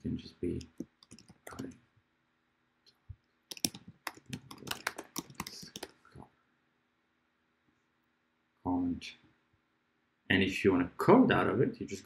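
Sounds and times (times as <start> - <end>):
computer keyboard typing: 0.6 - 1.8, 3.5 - 6.0.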